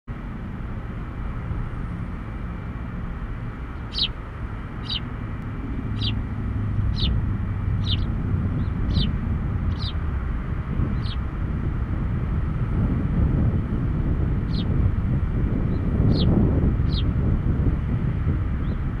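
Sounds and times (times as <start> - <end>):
steady low rumble: 0.1 - 19.0
bird chirping: 3.6 - 5.2, 5.8 - 10.0, 10.9 - 11.3, 14.5 - 14.7, 15.7 - 17.1.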